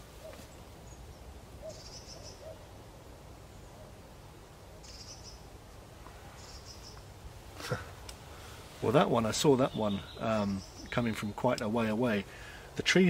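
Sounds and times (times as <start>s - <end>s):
fluttering high bird chirps: 4.8s - 5.4s, 6.4s - 7.0s.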